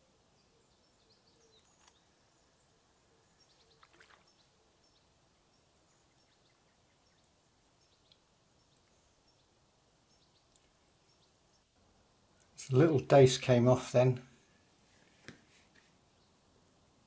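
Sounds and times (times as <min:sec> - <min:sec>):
small birds chirping: 0:00.0 - 0:13.7, 0:15.8 - 0:17.0
soft clicks: 0:01.6 - 0:02.0.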